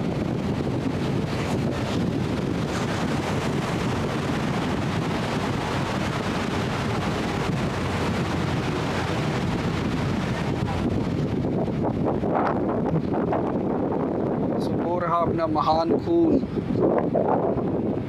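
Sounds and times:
water rushing: 0:00.0 - 0:18.0
wind buffeting microphone: 0:00.0 - 0:18.0.

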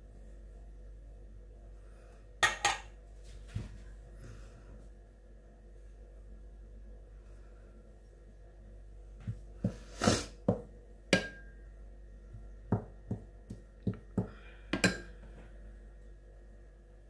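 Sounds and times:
metal spoon knocking and clinking: 0:02.4 - 0:02.9, 0:11.2 - 0:11.5.

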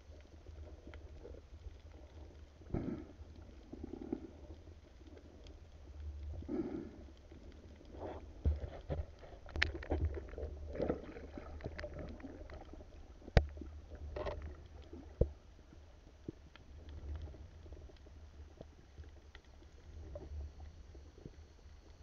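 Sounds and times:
underwater rumble of moving water: 0:00.0 - 0:22.0
sharp underwater knocks and clicks: 0:08.0 - 0:15.4.

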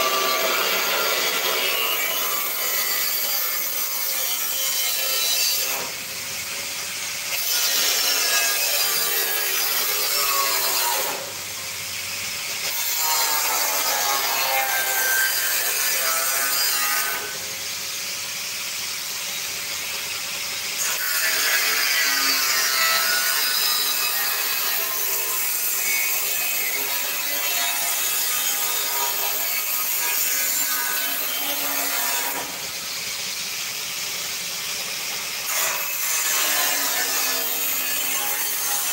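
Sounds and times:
angle grinder cutting metal: 0:00.0 - 0:38.9.

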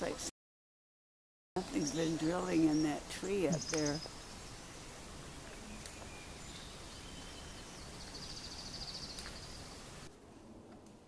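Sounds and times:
outdoor background noise: 0:00.0 - 0:00.3, 0:01.6 - 0:11.0
songbird trill: 0:01.6 - 0:10.1
faint high bird chirps: 0:05.4 - 0:09.8.

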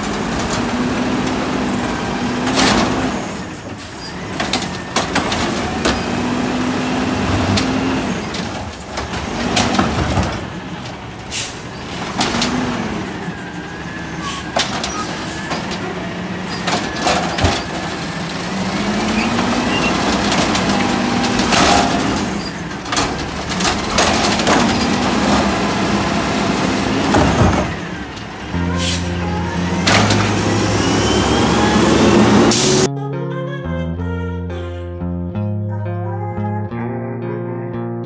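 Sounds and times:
clunks: 0:00.0 - 0:32.9
garbage truck engine running: 0:00.0 - 0:32.9
hydraulics whining: 0:00.0 - 0:32.9
air-brake hisses: 0:11.3 - 0:11.8, 0:28.7 - 0:29.2.

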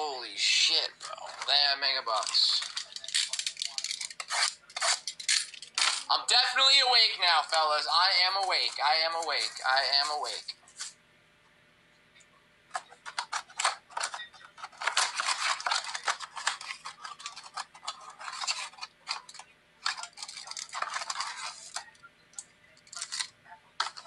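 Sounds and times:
cardboard and packs crinkling: 0:01.0 - 0:06.1, 0:12.8 - 0:21.9.

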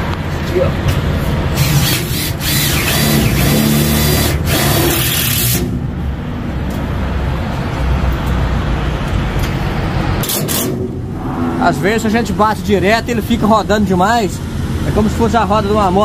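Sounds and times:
cordless drill driving screw into metal: 0:01.6 - 0:05.7
low steady rumble: 0:10.6 - 0:14.6.

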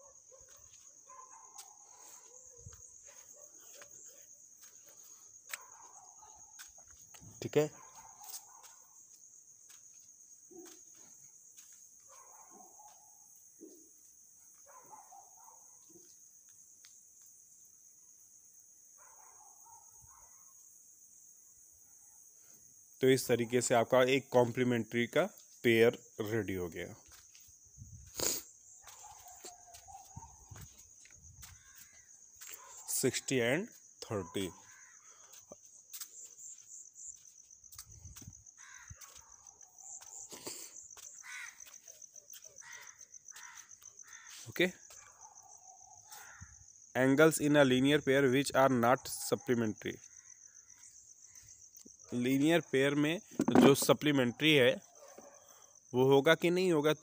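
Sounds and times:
cricket trilling: 0:00.0 - 0:57.0
crows cawing: 0:31.4 - 0:32.2, 0:34.6 - 0:35.6, 0:38.6 - 0:39.4, 0:41.0 - 0:41.8, 0:42.6 - 0:44.5, 0:46.0 - 0:46.6.

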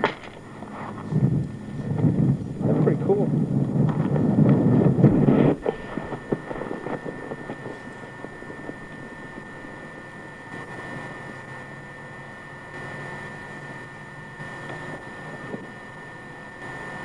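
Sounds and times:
wind noise on microphone: 0:00.0 - 0:11.8, 0:12.7 - 0:17.0
thin high whine: 0:00.0 - 0:17.0.

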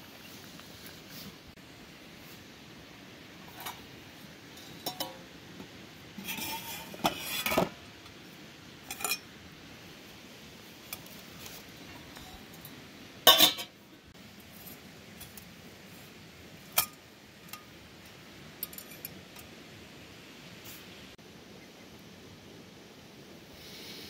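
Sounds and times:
metal pot clanks: 0:04.6 - 0:05.2, 0:08.9 - 0:09.3, 0:12.1 - 0:13.8
rattling metal scrape: 0:06.2 - 0:07.7.

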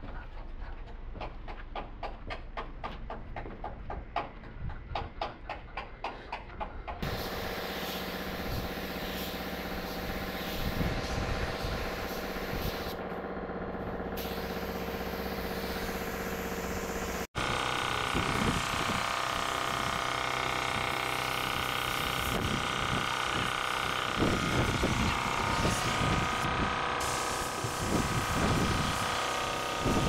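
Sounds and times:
spray gun hissing: 0:07.0 - 0:13.0, 0:14.1 - 0:17.3, 0:18.1 - 0:30.0
machine hum: 0:07.0 - 0:30.0.

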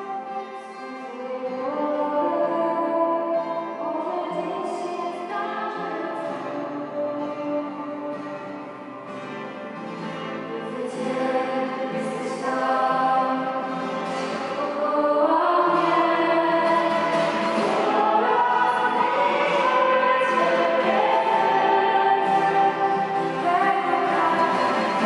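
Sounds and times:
acoustic guitar: 0:00.0 - 0:25.0
women singing in harmony: 0:00.8 - 0:07.8, 0:10.5 - 0:25.0.

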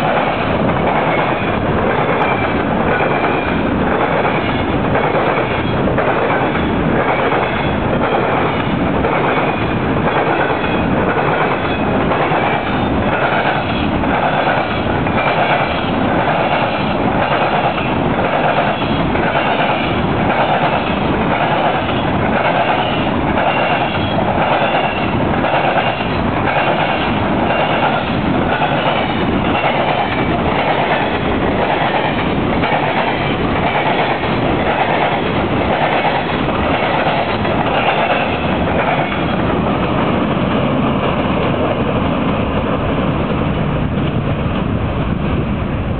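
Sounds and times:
train wheels clattering over crossing: 0:00.0 - 0:45.6.

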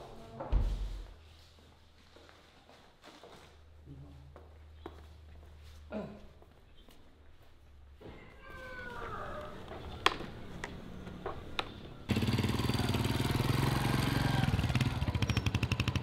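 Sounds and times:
motorcycle engine passing by: 0:12.0 - 0:16.0.

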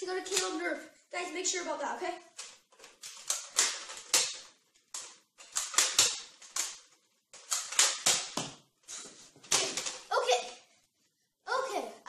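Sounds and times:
toy dart blaster firing: 0:05.6 - 0:06.8, 0:07.5 - 0:08.5.

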